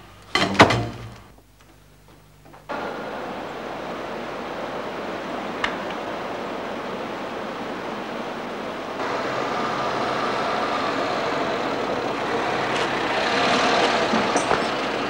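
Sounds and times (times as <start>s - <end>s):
outdoor background noise: 0.0s - 15.0s
motor vehicle: 9.0s - 15.0s.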